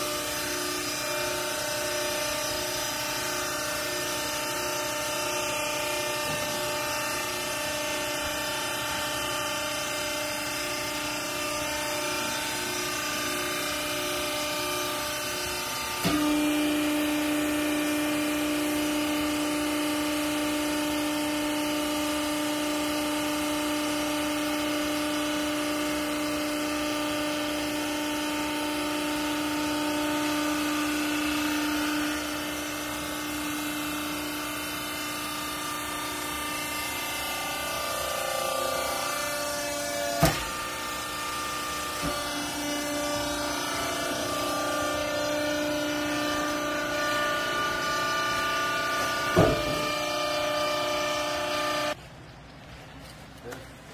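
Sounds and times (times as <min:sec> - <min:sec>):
hydraulic pump motor humming: 0:00.0 - 0:52.0.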